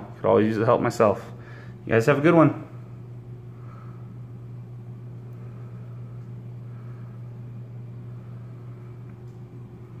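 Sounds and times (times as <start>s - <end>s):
aquarium equipment humming: 0.0s - 10.0s.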